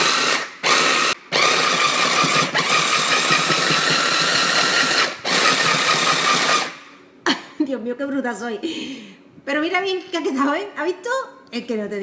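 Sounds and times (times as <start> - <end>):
hand blender motor whining: 0.0 - 6.8.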